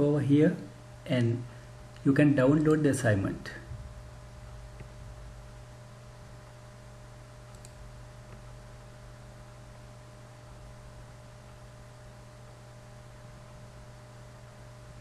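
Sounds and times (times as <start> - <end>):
low electrical hum and hiss: 0.0 - 15.0
mouse clicks: 7.5 - 8.4.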